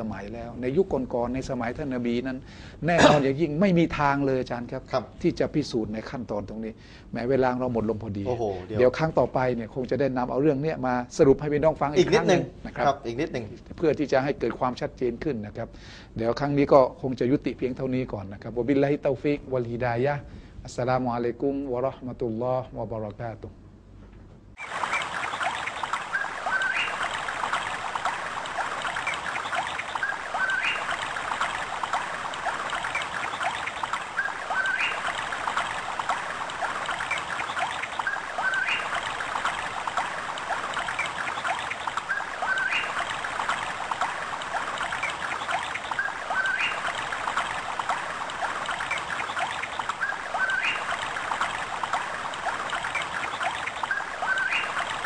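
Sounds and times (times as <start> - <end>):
trickling water: 0.0 - 15.3, 24.6 - 55.0
bird-like chirp: 24.6 - 55.0.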